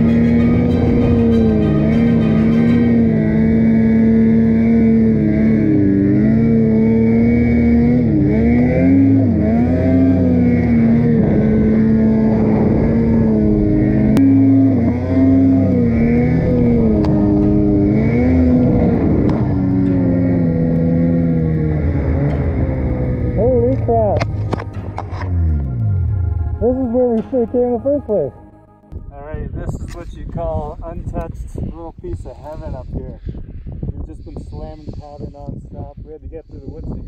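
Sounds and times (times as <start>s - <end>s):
snowmobile engine running hard: 0.0s - 28.0s.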